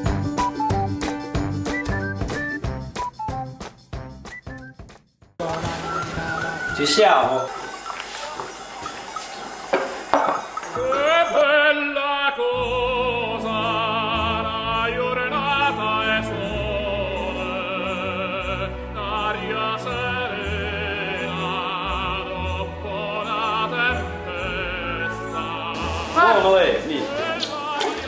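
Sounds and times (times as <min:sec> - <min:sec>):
operatic singing with vibrato: 0:10.7 - 0:28.0.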